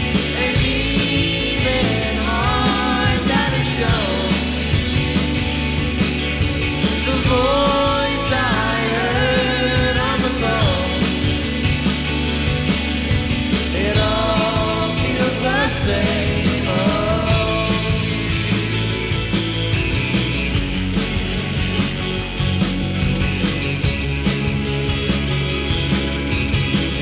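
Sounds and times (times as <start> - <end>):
indie rock band playing live: 0.0 - 27.0
woman singing: 0.3 - 4.6, 7.0 - 11.2, 13.7 - 18.2.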